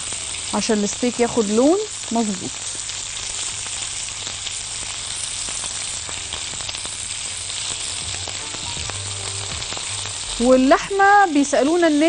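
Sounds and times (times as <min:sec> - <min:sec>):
meat sizzling in butter: 0:00.0 - 0:12.0
tongs turning meat: 0:02.5 - 0:12.0.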